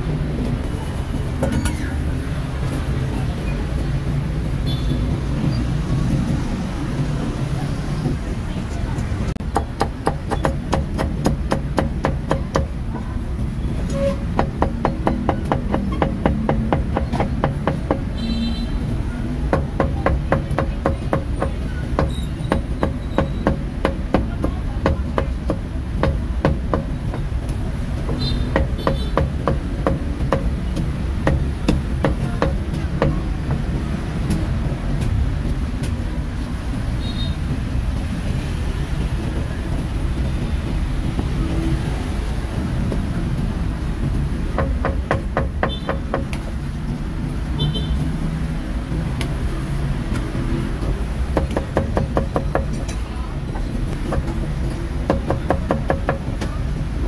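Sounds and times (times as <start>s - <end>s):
cleaver chopping on wooden block: 9.5s - 12.8s, 28.0s - 33.2s.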